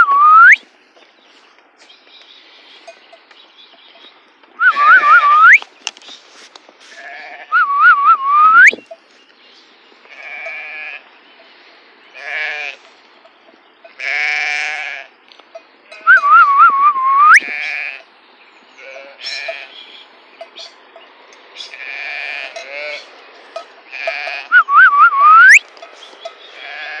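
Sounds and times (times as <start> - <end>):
herder's whistled call: 0.0 - 0.6, 4.6 - 5.7, 7.5 - 8.9, 16.0 - 17.6, 24.5 - 25.7
sheep bleating: 10.1 - 11.1, 12.1 - 12.8, 14.0 - 15.1, 21.6 - 23.1, 26.5 - 27.0.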